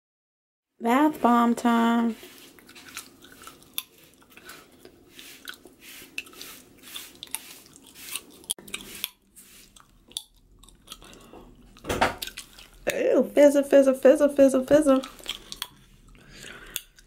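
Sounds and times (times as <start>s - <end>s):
gum chewing smacks: 2.5s - 6.4s, 7.2s - 13.0s, 15.0s - 17.0s.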